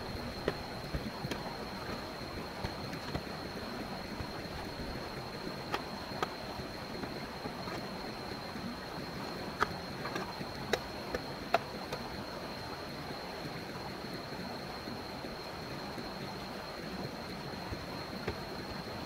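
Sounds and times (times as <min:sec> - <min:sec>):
stream water running: 0:00.0 - 0:19.0.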